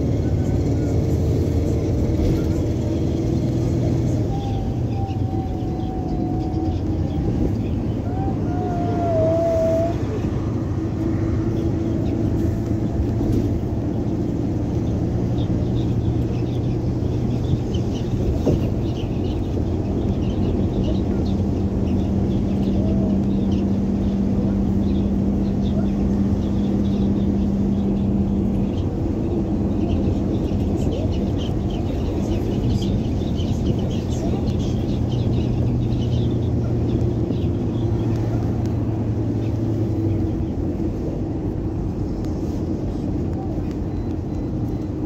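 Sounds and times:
bus engine and road rumble: 0:00.0 - 0:45.0.

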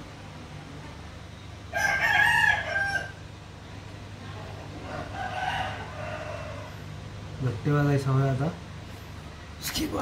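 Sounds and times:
rooster crowing: 0:01.7 - 0:03.3, 0:04.8 - 0:07.0.

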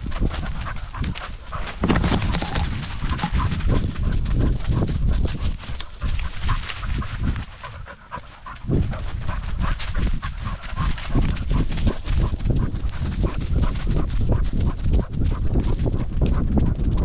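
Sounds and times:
dog panting: 0:00.0 - 0:17.0
paws crunching through dry leaves: 0:00.0 - 0:17.0
low bumps from camera mount: 0:01.5 - 0:03.7.

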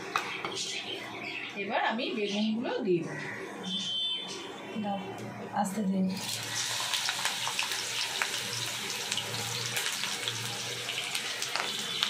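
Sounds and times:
food sizzling and crackling in oil: 0:06.1 - 0:12.0.

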